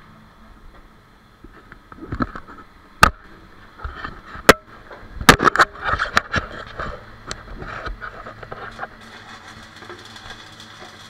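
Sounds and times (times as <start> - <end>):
arc welding crackling hiss: 6.3 - 11.0.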